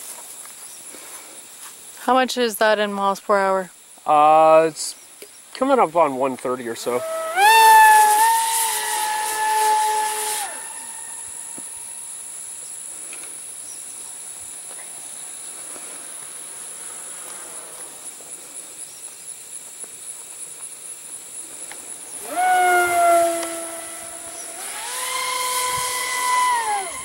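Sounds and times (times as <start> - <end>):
faint high-pitched hiss: 0.0 - 27.0
model plane motor whine: 6.9 - 12.0, 22.2 - 27.0.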